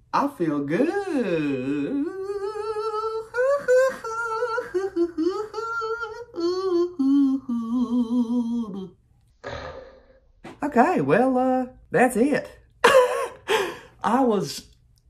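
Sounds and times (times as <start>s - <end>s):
man singing wordless tune: 1.0s - 8.9s.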